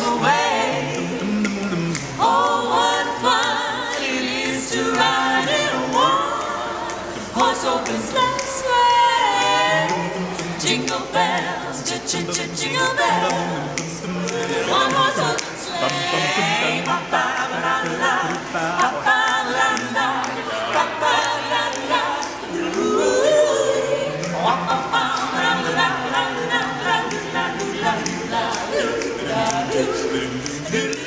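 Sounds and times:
a cappella choir singing: 0.0s - 31.0s.

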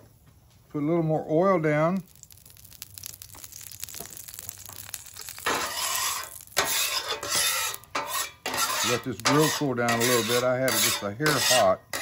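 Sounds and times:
oil crackling on griddle: 0.7s - 12.0s
scraper scraping griddle: 5.4s - 12.0s.

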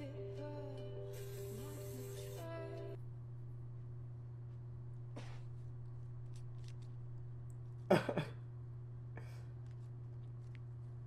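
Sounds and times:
low electrical hum: 0.0s - 11.0s.

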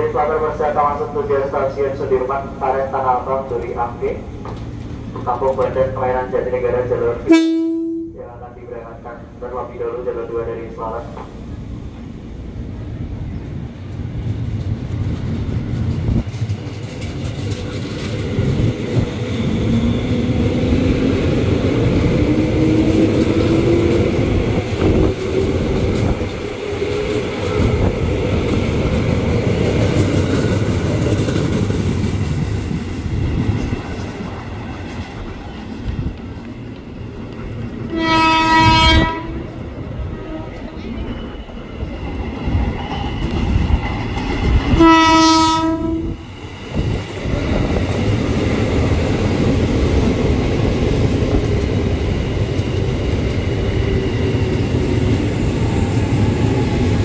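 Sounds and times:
electric train accelerating past: 0.0s - 57.0s
train horn: 7.2s - 8.5s, 37.9s - 39.6s, 44.7s - 46.2s.

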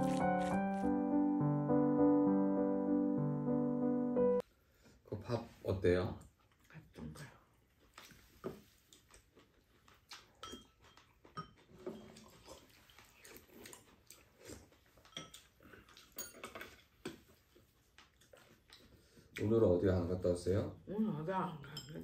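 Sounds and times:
chewing and slurping: 0.0s - 0.9s, 7.6s - 19.5s.

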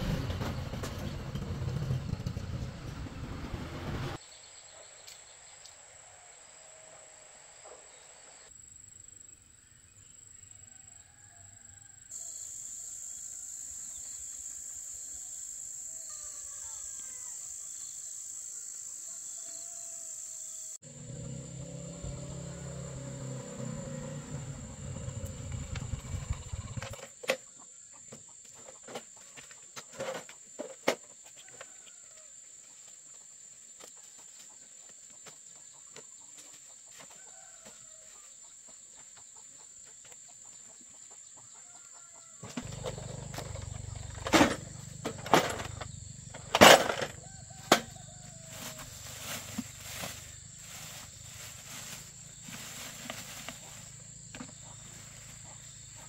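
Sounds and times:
low hum: 0.0s - 4.2s
insects droning: 4.2s - 36.3s, 36.9s - 56.0s.

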